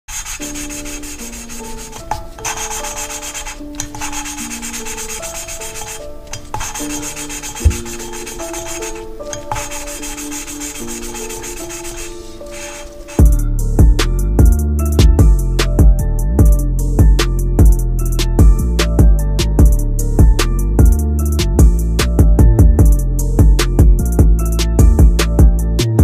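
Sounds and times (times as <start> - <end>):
sharp knock: 7.6 - 8.1.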